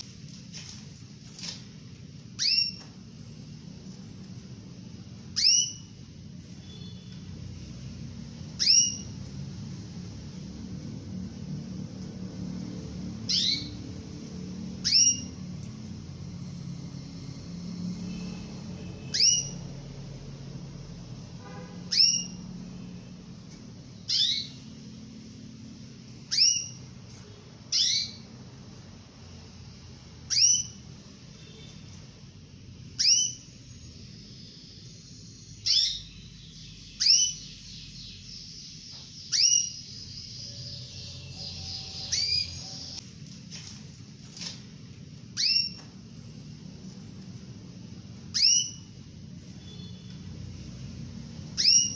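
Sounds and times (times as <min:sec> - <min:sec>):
steady low hum: 0:00.0 - 0:51.9
faint bird twittering: 0:02.2 - 0:10.4, 0:13.2 - 0:20.2, 0:21.8 - 0:28.4, 0:30.0 - 0:43.0, 0:45.3 - 0:51.9
canary call notes: 0:02.3 - 0:02.9, 0:05.3 - 0:07.4, 0:08.4 - 0:09.2, 0:13.2 - 0:14.0, 0:14.7 - 0:15.5, 0:18.0 - 0:19.8, 0:21.5 - 0:23.0, 0:24.0 - 0:24.8, 0:26.2 - 0:26.9, 0:27.7 - 0:28.3, 0:30.2 - 0:31.8, 0:35.5 - 0:43.0, 0:45.3 - 0:45.9, 0:48.2 - 0:51.9
canary rising call notes: 0:39.2 - 0:43.0, 0:51.5 - 0:51.9.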